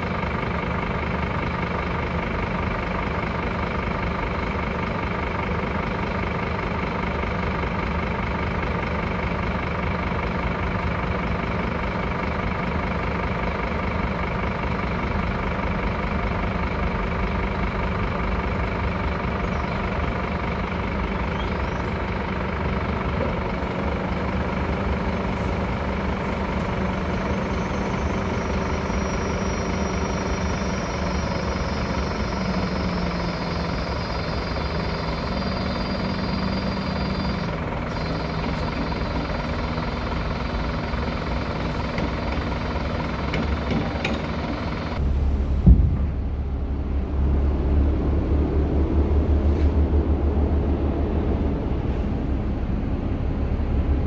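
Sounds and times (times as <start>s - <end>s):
diesel truck engine idling: 0.0s - 54.0s.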